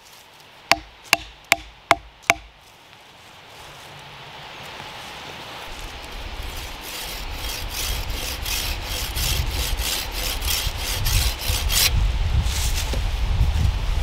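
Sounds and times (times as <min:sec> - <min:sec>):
hand saw cutting stick: 0:00.7 - 0:02.5, 0:06.0 - 0:11.9.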